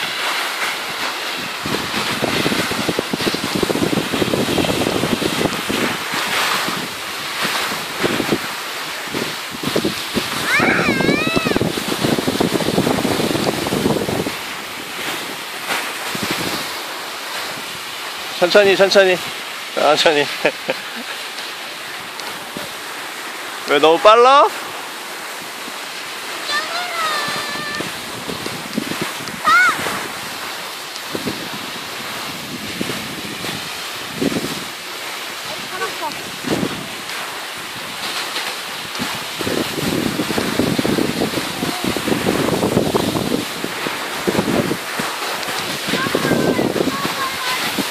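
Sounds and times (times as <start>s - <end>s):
wind buffeting microphone: 0.0s - 19.5s, 24.6s - 47.9s
child's high-pitched cry: 10.4s - 11.7s, 26.5s - 28.0s, 29.4s - 29.9s.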